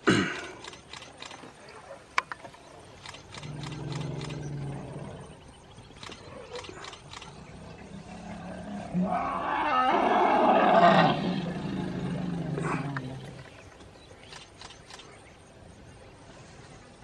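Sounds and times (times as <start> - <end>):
elephant roaring: 3.4 - 5.4, 7.4 - 13.6.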